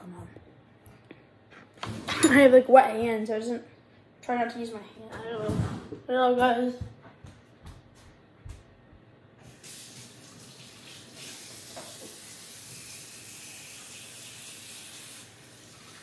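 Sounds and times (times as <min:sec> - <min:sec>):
water running from a tap: 0:09.4 - 0:16.0.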